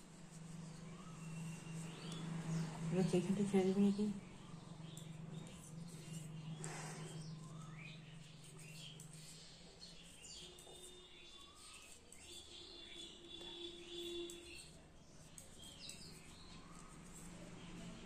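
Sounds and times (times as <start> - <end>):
low steady hum: 0.0 - 10.2
faint bird chirping: 0.0 - 18.0.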